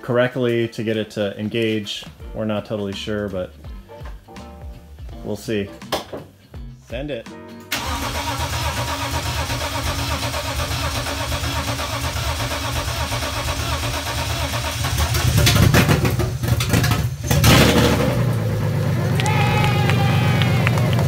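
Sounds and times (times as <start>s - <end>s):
car engine starting and running: 7.7s - 19.4s.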